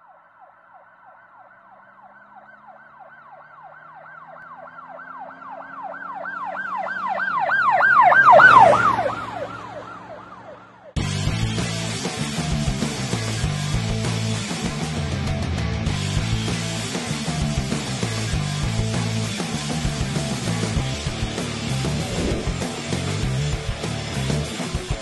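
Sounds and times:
emergency vehicle siren wailing: 0:00.0 - 0:11.0, 0:19.4 - 0:25.0
loud guitar music: 0:11.0 - 0:25.0
low vehicle hum: 0:19.9 - 0:24.6.

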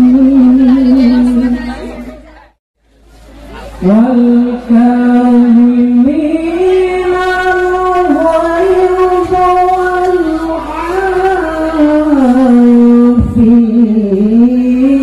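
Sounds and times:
music with singing voice: 0:03.8 - 0:15.0.

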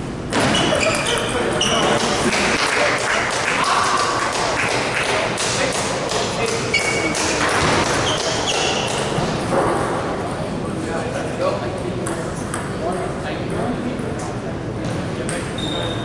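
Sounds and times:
table tennis balls bouncing: 0:00.3 - 0:09.8, 0:12.0 - 0:14.1.

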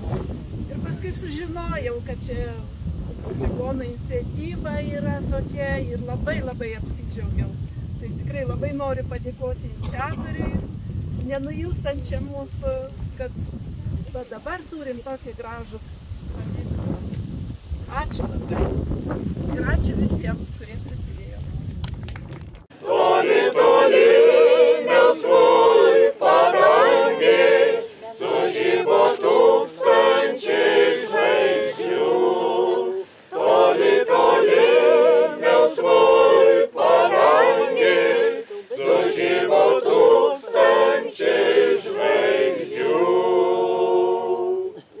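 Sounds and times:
choir singing a cappella: 0:22.7 - 0:45.0.

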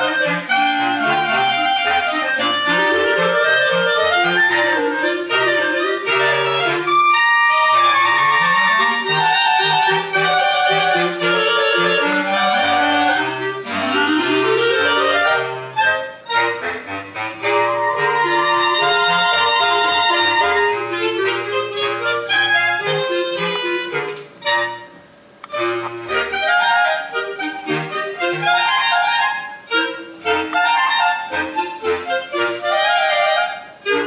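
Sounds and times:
clarinet quartet playing: 0:00.0 - 0:34.0.

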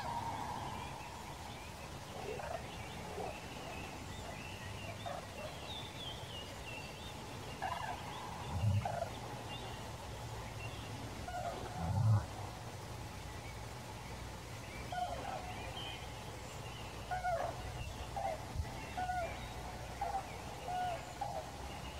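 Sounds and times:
moose grunting: 0:08.4 - 0:08.9.

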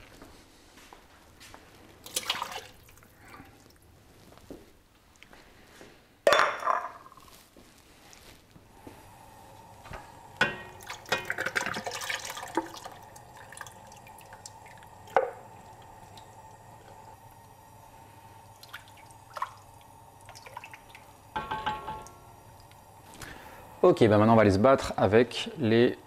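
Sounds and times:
coconut milk pouring into pot: 0:02.0 - 0:03.8, 0:10.3 - 0:23.6
can and spoon clinking on pot: 0:10.4 - 0:12.8, 0:21.3 - 0:22.2.

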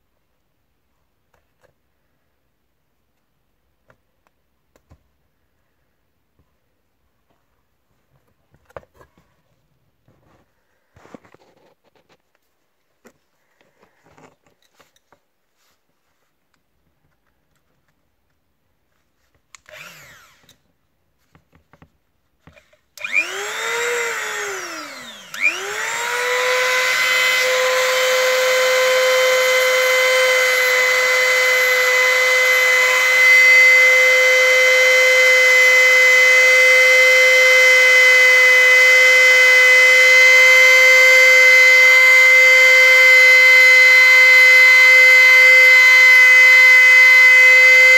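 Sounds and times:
rotary tool whining: 0:19.6 - 0:20.6, 0:22.4 - 0:47.9.

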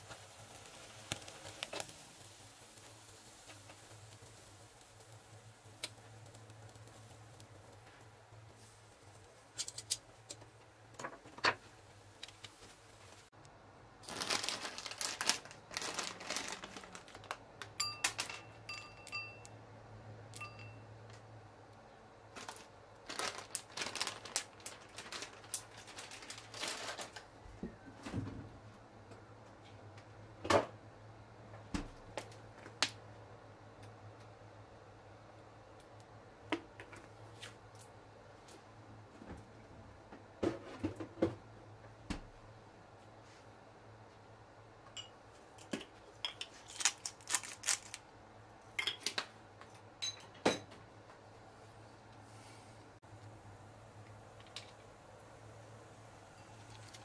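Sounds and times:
crinkly rustles: 0:00.0 - 0:13.3, 0:14.0 - 0:18.6, 0:22.3 - 0:27.5, 0:46.4 - 0:48.1, 0:56.4 - 0:57.0
pepper mill grinding: 0:46.4 - 0:48.0.

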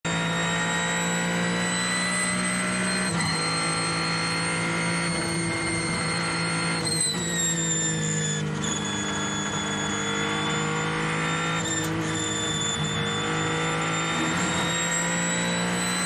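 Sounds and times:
race car engine at speed: 0:00.0 - 0:16.0
high whine: 0:03.0 - 0:15.6.

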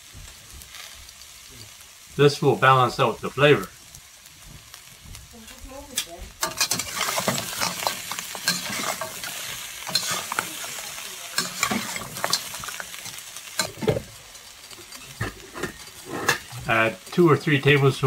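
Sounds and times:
lobster sizzling in a wok: 0:00.0 - 0:18.0
shells clacking against pan: 0:06.0 - 0:16.7
metal ladle scraping a wok: 0:06.4 - 0:17.9.

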